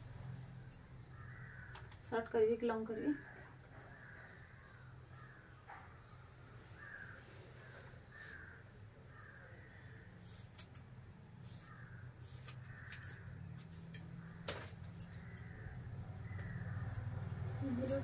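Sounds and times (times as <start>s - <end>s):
crows cawing: 1.1s - 2.0s, 3.1s - 5.9s, 6.7s - 10.2s, 11.6s - 17.0s.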